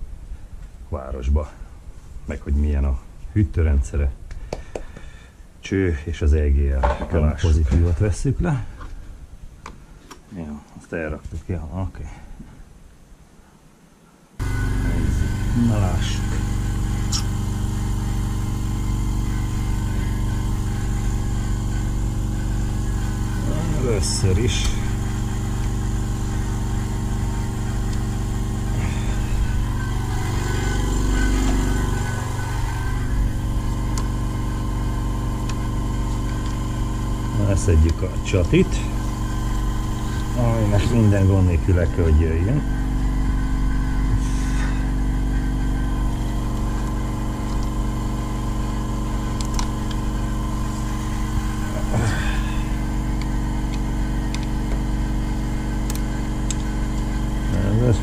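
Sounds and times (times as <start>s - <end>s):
steady mechanical hum: 0.0s - 58.0s
engine idling: 14.4s - 41.7s, 42.4s - 58.0s.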